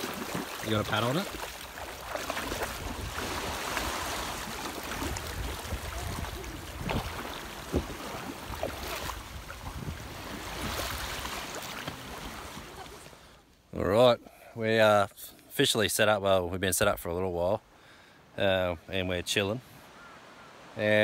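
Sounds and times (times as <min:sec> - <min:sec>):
water splashing around wading legs: 0:00.0 - 0:13.2
small waves washing: 0:00.0 - 0:13.6.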